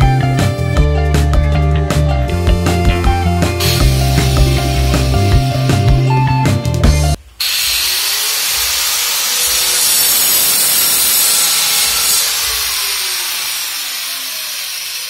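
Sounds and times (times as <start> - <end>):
electric drill boring into wall: 2.5 - 5.7, 7.4 - 15.0.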